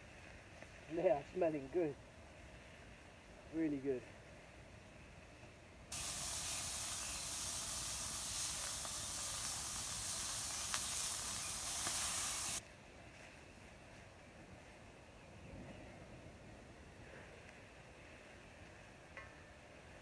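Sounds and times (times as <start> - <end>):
meatballs sizzling in a pan: 5.9 - 12.6.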